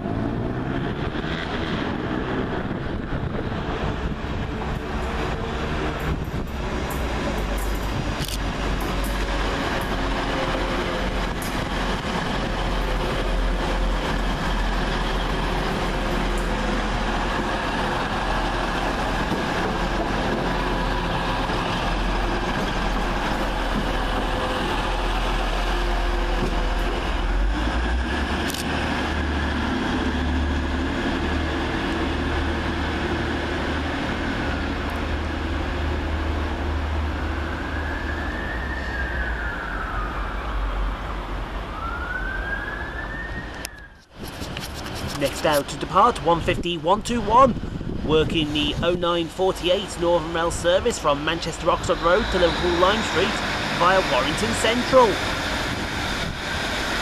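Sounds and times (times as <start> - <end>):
diesel train rumble: 0.0 - 57.0
wheel and rail noise: 0.0 - 57.0
siren rising and falling: 37.6 - 44.0.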